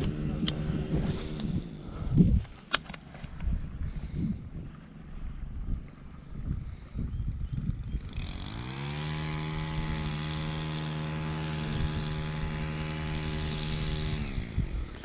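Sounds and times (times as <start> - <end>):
motor spinning: 6.6 - 15.0.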